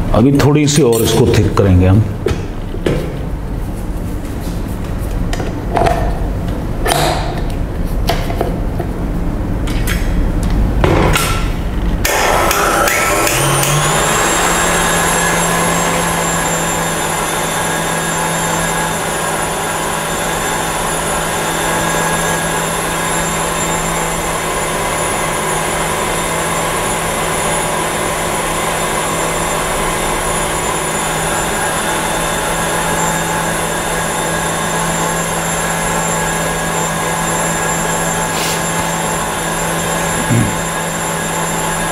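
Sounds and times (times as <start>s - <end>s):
stand mixer motor whine: 12.0s - 41.9s.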